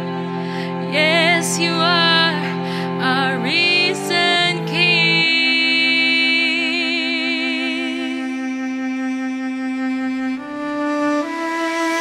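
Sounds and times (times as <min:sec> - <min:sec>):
sustained accompaniment: 0:00.0 - 0:12.0
woman singing with vibrato: 0:00.7 - 0:08.4.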